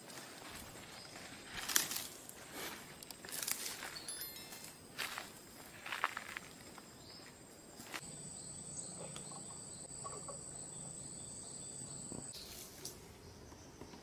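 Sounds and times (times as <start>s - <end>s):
footsteps in dry undergrowth: 0.0s - 8.1s
cricket trilling: 0.9s - 13.5s.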